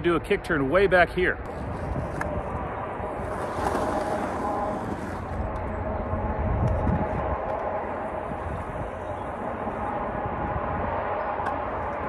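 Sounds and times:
skateboard rolling on rough concrete: 0:01.5 - 0:10.2.

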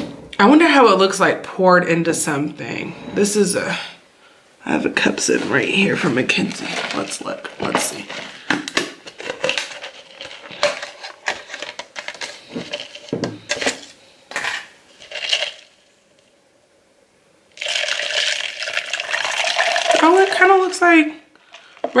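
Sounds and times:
beer pouring into a cup: 0:17.6 - 0:20.4.

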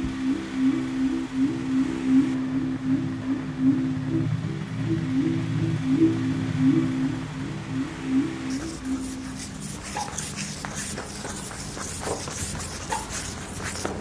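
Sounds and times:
hurried footsteps: 0:09.4 - 0:14.0.

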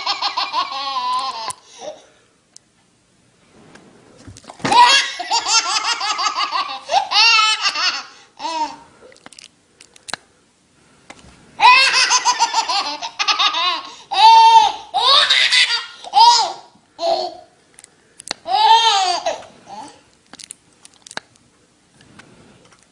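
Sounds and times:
baby laughing: 0:00.0 - 0:02.0, 0:04.7 - 0:08.8, 0:11.6 - 0:17.5, 0:18.5 - 0:20.0.

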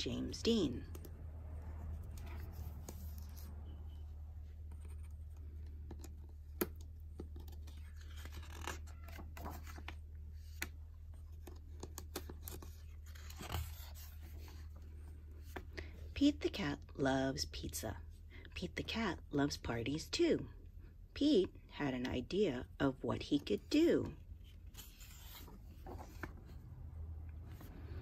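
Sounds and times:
book pages rustling: 0:00.5 - 0:16.0, 0:23.8 - 0:28.0.

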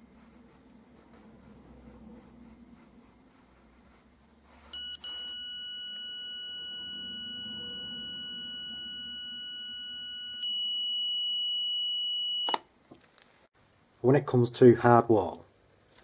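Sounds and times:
detector continuous high tone: 0:04.8 - 0:12.5.

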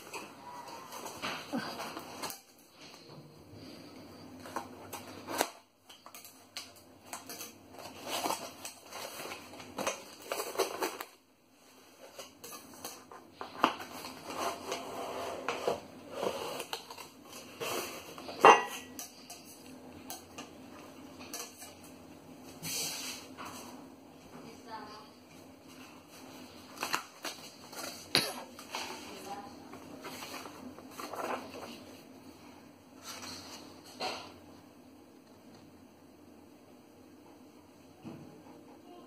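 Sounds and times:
cardboard scraping and rustling: 0:13.8 - 0:18.4.

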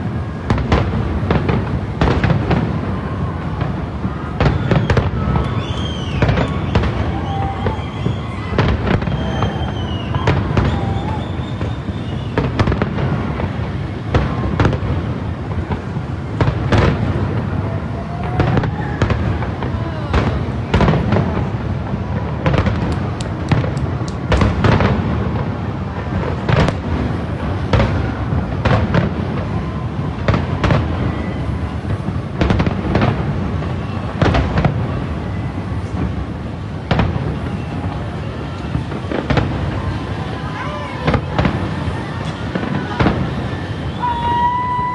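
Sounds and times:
fireworks bursting bangs: 0:00.0 - 0:44.9.

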